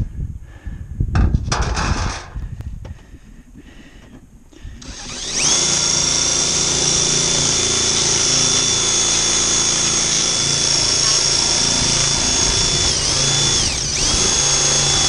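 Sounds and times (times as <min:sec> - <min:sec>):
cordless drill cutting sheet metal: 0:04.8 - 0:15.0.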